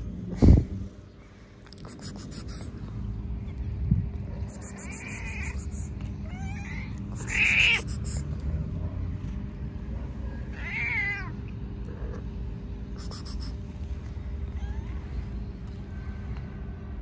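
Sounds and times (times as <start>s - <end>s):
cat meowing: 4.6s - 8.2s, 10.5s - 11.4s, 14.4s - 15.3s.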